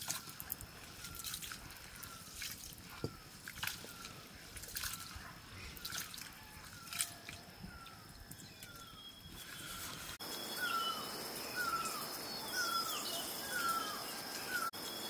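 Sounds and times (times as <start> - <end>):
hand sloshing rice in water: 0.0 - 5.2, 5.8 - 7.4
wet splashes and drips: 0.0 - 10.2.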